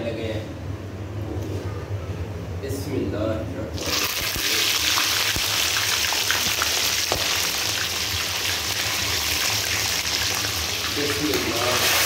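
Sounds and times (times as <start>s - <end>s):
chicken deep-frying in oil: 3.8s - 12.0s.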